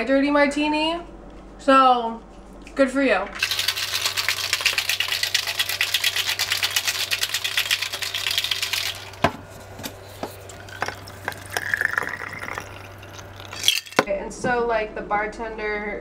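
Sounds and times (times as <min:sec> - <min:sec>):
ice rattling in cocktail shaker: 0:03.4 - 0:09.3, 0:10.4 - 0:14.1.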